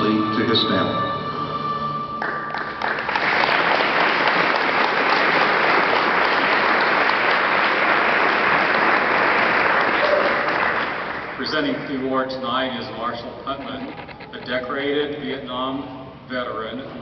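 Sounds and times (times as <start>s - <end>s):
music track: 0.0s - 3.0s
audience applauding: 2.2s - 12.0s.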